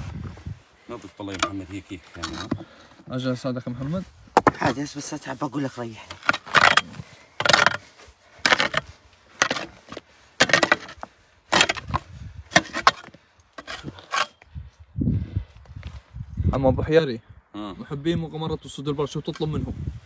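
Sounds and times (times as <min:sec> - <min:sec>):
pick striking stony earth: 0:08.4 - 0:14.4.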